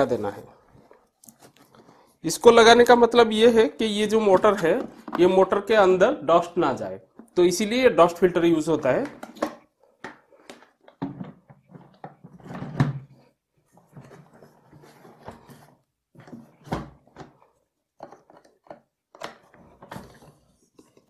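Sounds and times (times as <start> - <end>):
plastic knocks and clunks: 4.2 - 5.6, 8.9 - 17.4.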